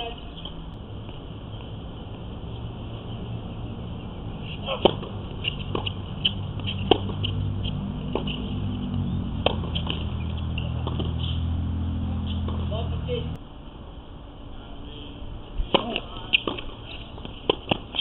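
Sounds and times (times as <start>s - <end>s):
low hum: 0.0s - 18.0s
tennis ball pocks: 4.6s - 8.5s, 9.4s - 11.4s, 15.7s - 18.0s.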